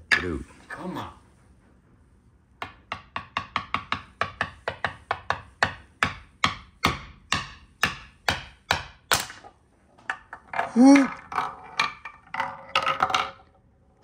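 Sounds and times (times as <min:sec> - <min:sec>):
wooden mallet tapping wooden toy: 0:02.6 - 0:09.3.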